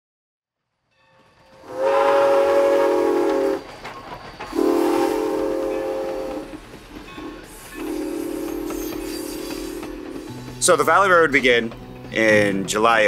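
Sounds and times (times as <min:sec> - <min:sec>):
steam locomotive chime whistle: 0:00.9 - 0:03.8, 0:04.5 - 0:11.4.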